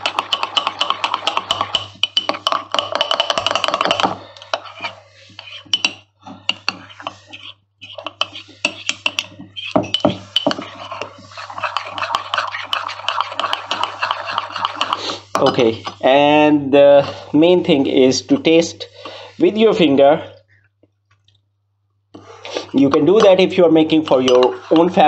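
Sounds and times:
metal spoon scraping in a mug: 0.0 - 16.2, 22.6 - 25.0.

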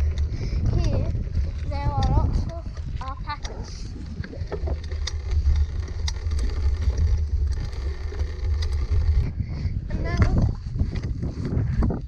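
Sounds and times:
bicycle clicks and rattles: 0.0 - 11.5
wind rumbling on microphone: 0.0 - 12.0.

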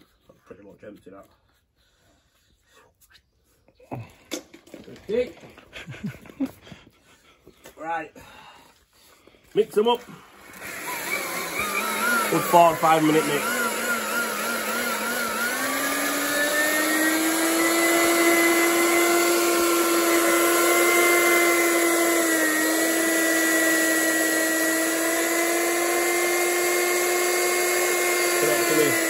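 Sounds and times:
electric paddle mixer whining: 9.8 - 29.0.

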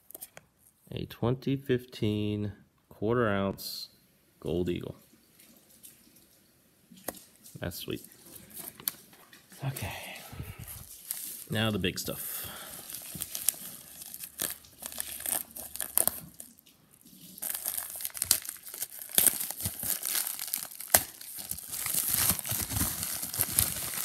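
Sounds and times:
plastic wrapping crinkling and tearing: 10.6 - 24.0.

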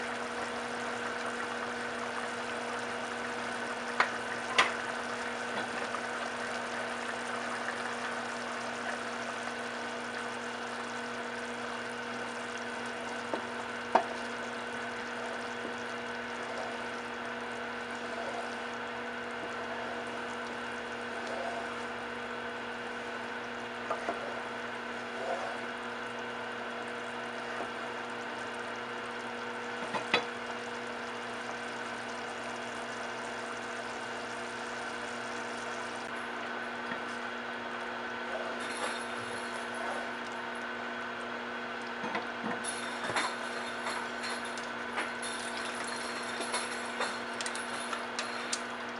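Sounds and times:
chili simmering: 0.0 - 38.3
steady hum: 0.0 - 48.9.

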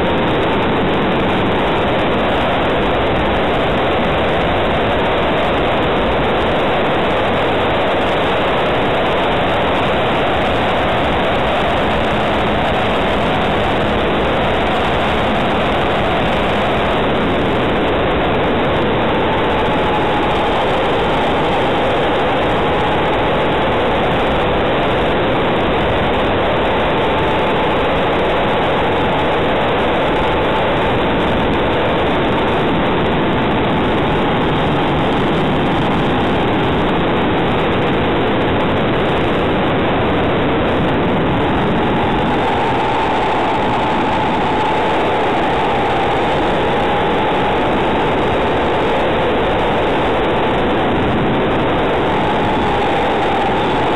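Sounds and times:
wind rushing over microphone: 0.0 - 53.9.

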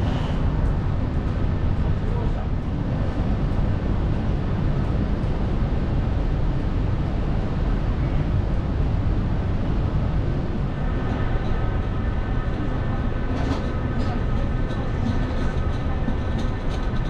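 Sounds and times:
train equipment low rumble: 0.0 - 17.0.

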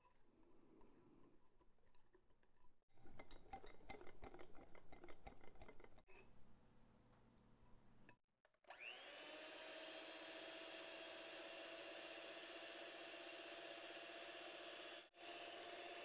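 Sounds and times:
whisk clicking against glass bowl: 3.0 - 6.0
electric hand mixer whine: 8.7 - 16.0.

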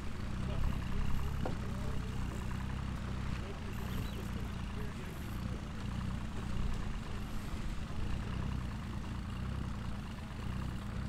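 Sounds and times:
boat engine idling: 0.0 - 11.0.

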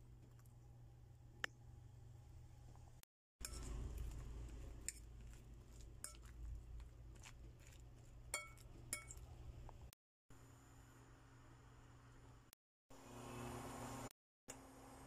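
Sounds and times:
faint steady hum: 0.0 - 15.0
metal fork clinking against bowl: 5.7 - 6.4, 8.3 - 9.2.

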